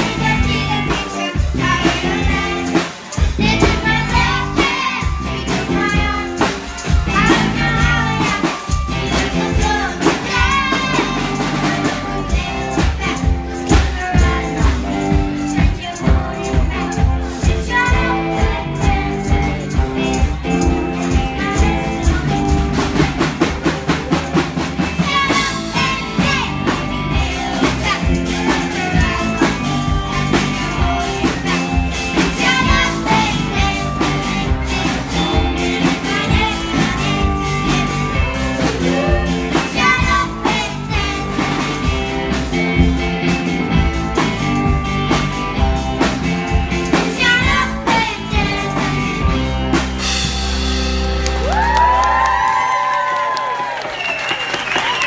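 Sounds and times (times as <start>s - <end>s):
children singing: 0.0s - 41.8s
rock band playing: 0.0s - 55.0s.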